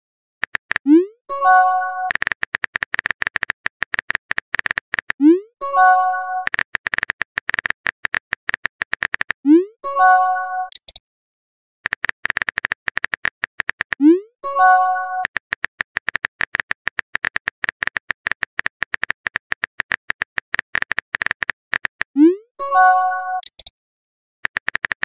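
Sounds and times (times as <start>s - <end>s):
keyboard tap clicks: 2.1s - 5.2s.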